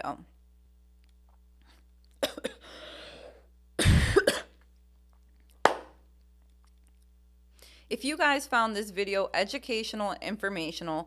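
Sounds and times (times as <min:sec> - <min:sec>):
woman coughing: 0:02.2 - 0:04.6
woman inhaling sharply: 0:02.6 - 0:03.4, 0:07.6 - 0:07.9.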